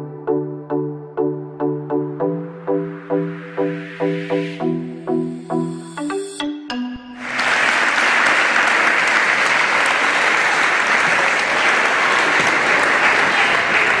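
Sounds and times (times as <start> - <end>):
crowd applauding: 7.2 - 14.0.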